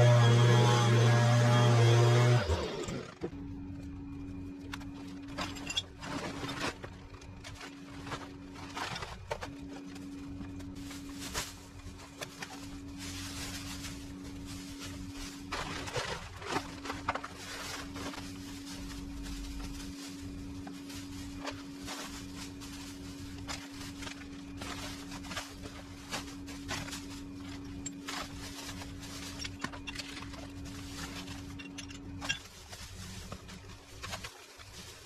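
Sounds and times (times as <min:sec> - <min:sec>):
steady low hum: 0:00.0 - 0:35.0
plastic bag rustling: 0:03.8 - 0:35.0
footsteps in long grass: 0:09.8 - 0:31.7.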